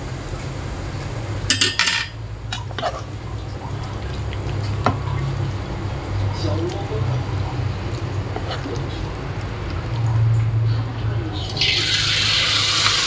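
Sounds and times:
steady low hum: 0.0 - 12.8
metal utensils clinking on wok: 1.5 - 2.2
oil sizzling in wok: 11.4 - 13.0.

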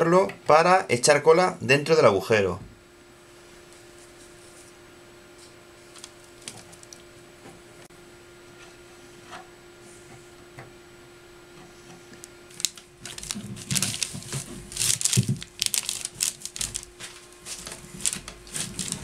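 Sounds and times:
faint steady hum: 0.0 - 19.0
crinkling and rustling: 5.9 - 7.0, 12.2 - 19.0.

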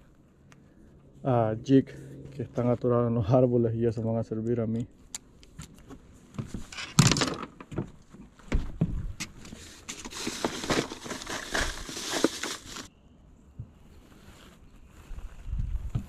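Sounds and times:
branches and leaves rustling: 9.3 - 12.9.

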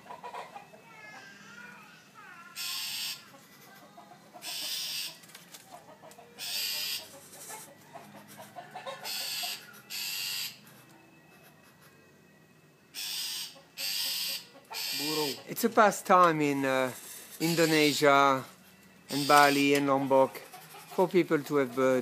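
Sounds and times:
fowl clucking softly: 0.0 - 0.8, 3.9 - 5.2, 5.8 - 10.1, 13.2 - 15.5.

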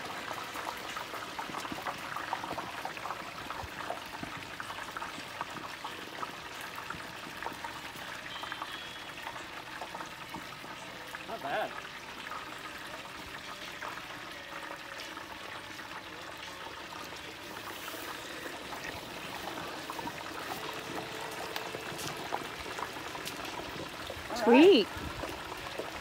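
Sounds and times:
hot oil bubbling and sizzling: 0.0 - 26.0.

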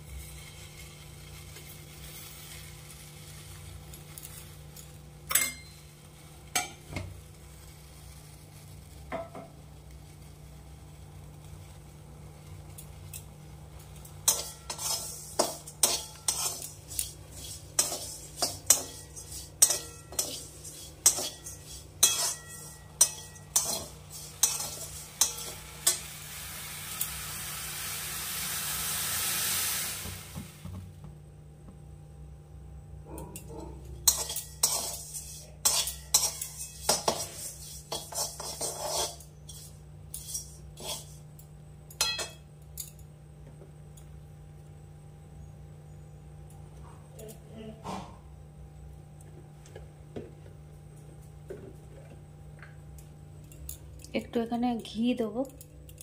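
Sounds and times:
metal spoon clinking against pot: 5.3 - 5.8, 14.2 - 26.1, 33.4 - 39.2, 41.9 - 43.0
hiss: 23.7 - 30.7.

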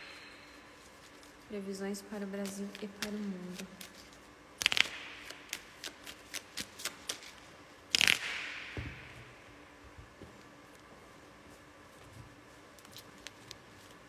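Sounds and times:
cards being shuffled: 2.2 - 8.5, 12.7 - 14.0.

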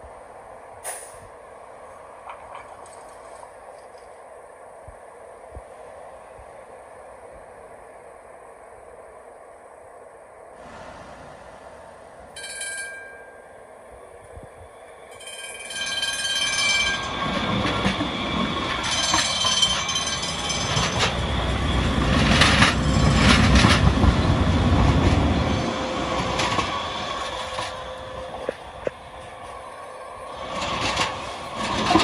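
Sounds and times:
light rail car whining: 0.0 - 32.0
train wheels rumbling: 14.0 - 32.0
wheels clacking over rail joints: 15.1 - 29.6, 30.4 - 32.0.

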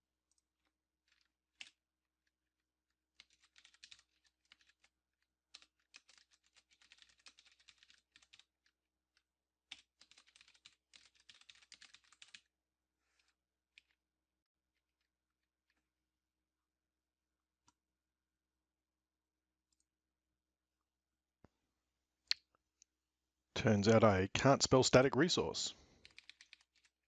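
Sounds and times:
faint keyboard typing: 0.3 - 1.8, 3.1 - 14.0, 23.6 - 27.0.

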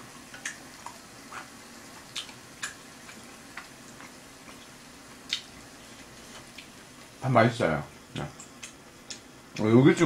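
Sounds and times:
meat sizzling on a griddle: 0.0 - 7.8.

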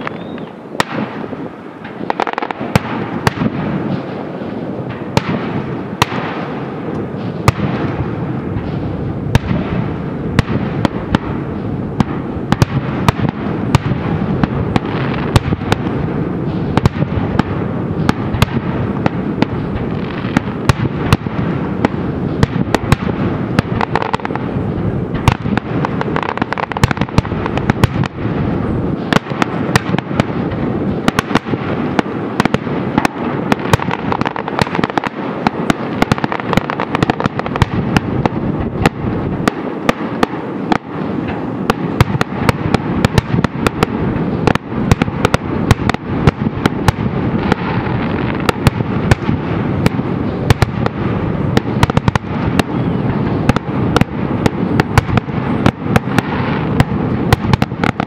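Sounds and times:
continuous fireworks crackle: 0.0 - 58.0
fireworks cracks and bangs: 0.0 - 58.0.

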